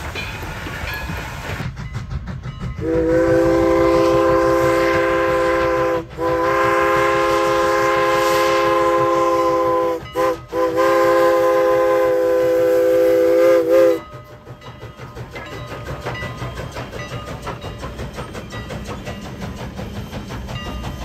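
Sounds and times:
steam locomotive whistle: 2.8s - 17.6s.

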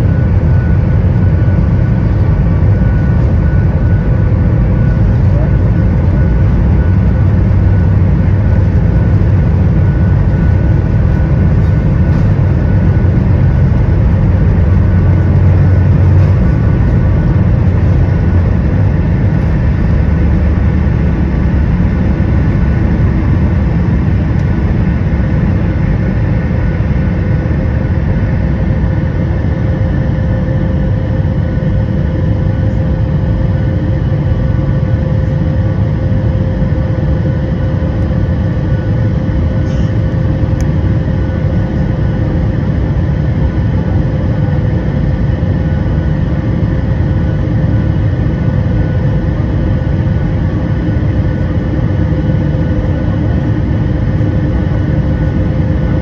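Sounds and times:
runway rumble: 0.0s - 27.0s
jet engines at takeoff thrust: 0.0s - 56.0s.

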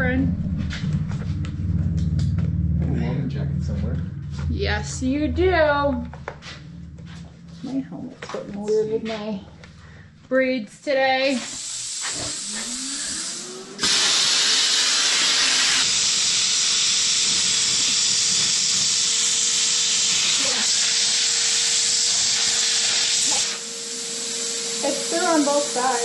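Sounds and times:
rising hum: 0.0s - 14.6s
plasma cutter hissing: 11.2s - 26.0s.

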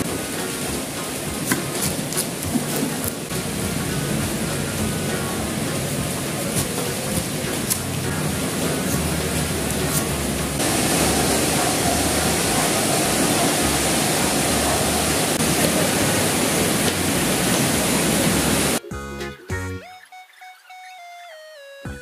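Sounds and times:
loud rushing noise: 3.3s - 18.8s.

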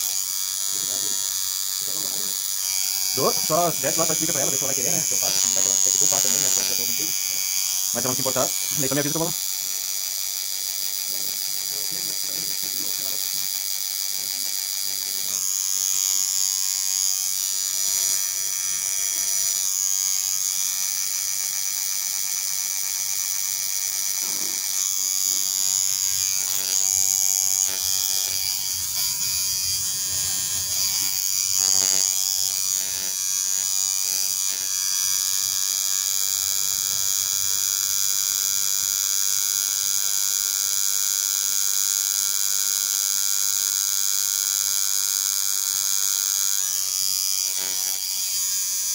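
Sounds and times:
tattoo machine buzzing: 0.0s - 48.9s.

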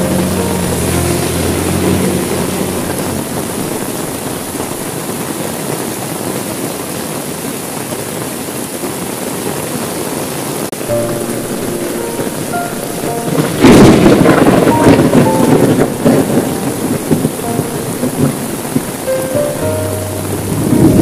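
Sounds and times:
heavy rain on window glass: 0.0s - 21.0s
low rumble of thunder: 11.0s - 19.0s, 20.1s - 21.0s.

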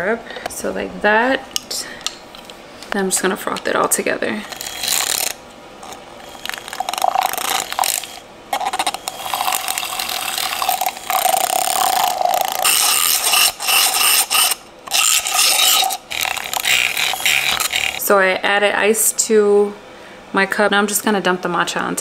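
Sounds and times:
electric milk frother whirring: 4.3s - 18.2s.

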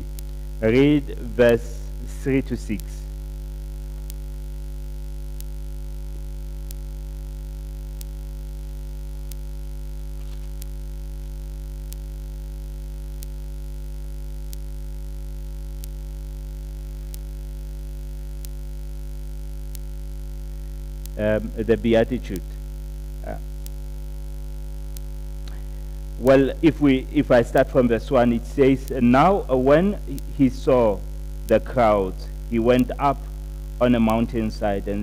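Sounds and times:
faint ticks: 0.0s - 0.9s, 2.7s - 21.2s, 22.3s - 26.3s
electrical mains hum: 0.0s - 35.0s.

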